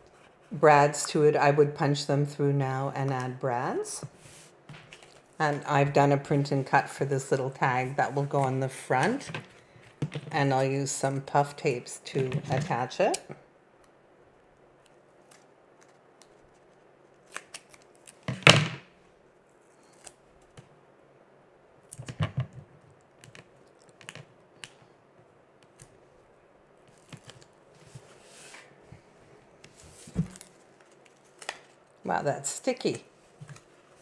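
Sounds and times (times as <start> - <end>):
faint rustle of tape and paper: 14.5 - 18.2, 25.6 - 32.0.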